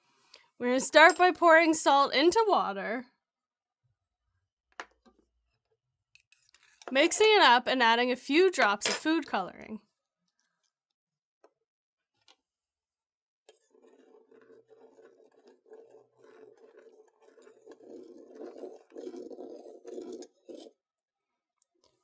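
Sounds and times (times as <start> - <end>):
teaspoon stirring in metal cup: 0.7 - 1.7, 13.5 - 20.7.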